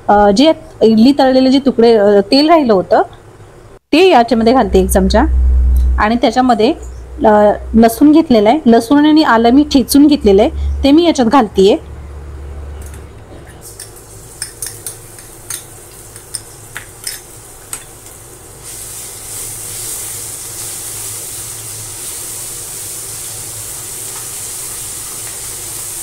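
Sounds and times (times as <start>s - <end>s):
garlic sizzling in hot oil: 13.6s - 26.0s.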